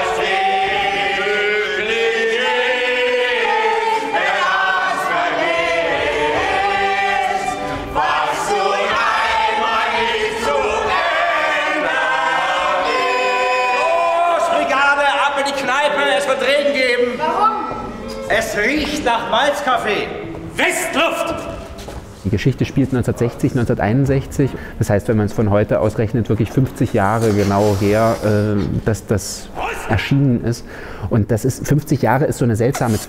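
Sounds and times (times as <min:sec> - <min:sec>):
mixed choir singing: 0:00.0 - 0:15.2.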